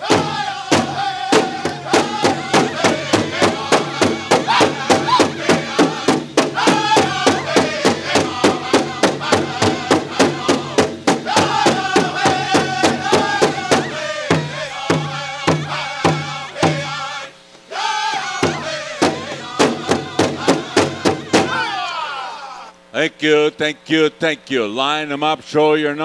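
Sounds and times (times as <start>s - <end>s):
big drum beat: 0.0s - 17.0s, 18.2s - 21.8s
group singing: 0.0s - 22.7s.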